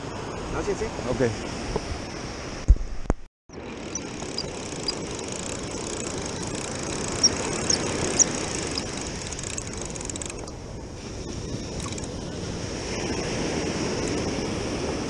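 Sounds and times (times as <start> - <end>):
wind on microphone: 0.0 - 15.0
short high squeaks: 3.6 - 10.6.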